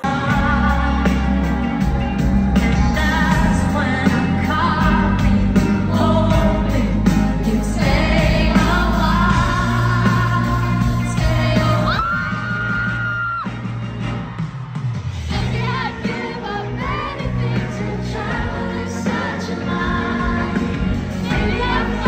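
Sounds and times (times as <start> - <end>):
person singing: 0.0 - 12.7
live pop band playing: 0.0 - 22.0.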